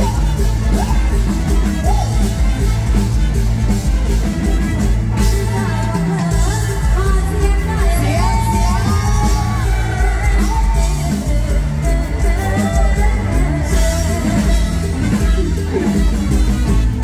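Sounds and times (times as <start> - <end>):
band with heavy bass and drums: 0.0 - 17.0
person singing melodic vocals: 5.2 - 16.8.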